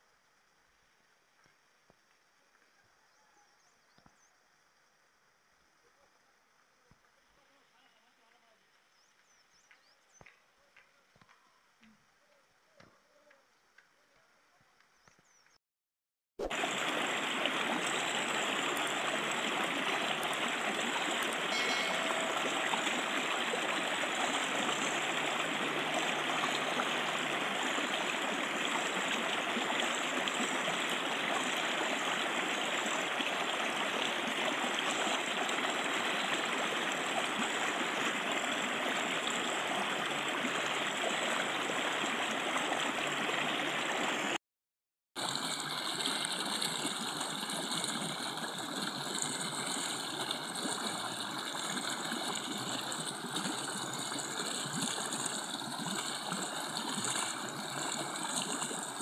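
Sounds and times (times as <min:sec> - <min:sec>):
stream rushing over rocks: 0:16.4 - 0:44.4, 0:45.2 - 0:59.0.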